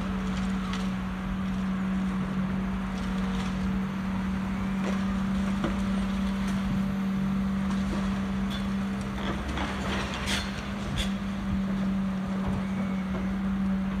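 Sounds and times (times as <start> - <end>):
excavator diesel engine running: 0.0 - 14.0
knocks and clatter: 7.6 - 11.3.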